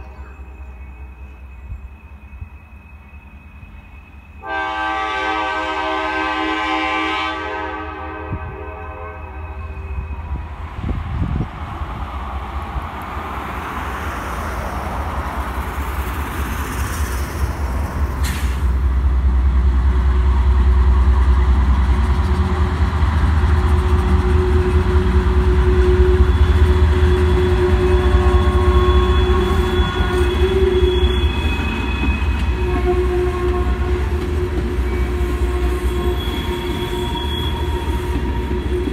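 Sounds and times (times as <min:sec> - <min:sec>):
diesel locomotive rumble: 0:00.0 - 0:38.9
wheel squeals: 0:25.8 - 0:33.1, 0:34.3 - 0:38.9.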